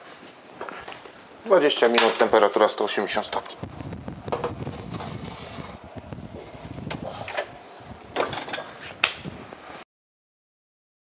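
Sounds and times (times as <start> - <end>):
oven door shutting: 6.5 - 9.3.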